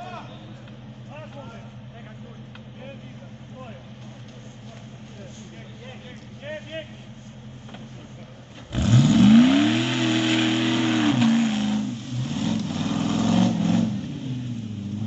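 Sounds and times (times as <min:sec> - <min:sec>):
buggy engine revving: 0:07.5 - 0:15.0.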